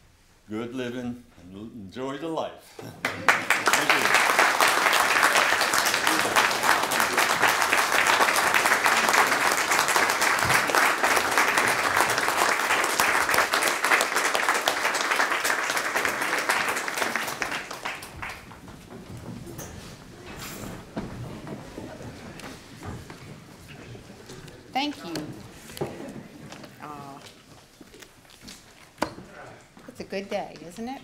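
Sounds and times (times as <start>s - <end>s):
audience applauding: 3.0s - 19.5s.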